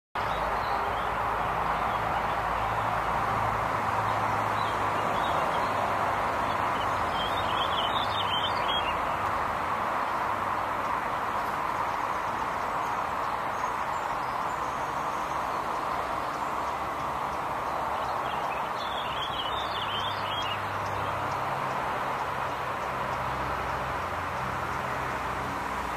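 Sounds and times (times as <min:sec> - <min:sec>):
bird chirping: 0:04.0 - 0:09.4, 0:10.6 - 0:24.9.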